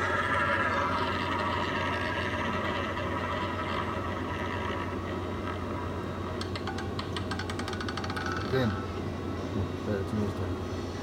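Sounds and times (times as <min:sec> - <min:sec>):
roulette ball rolling whir: 0:00.0 - 0:08.8
low electrical hum: 0:00.0 - 0:11.0.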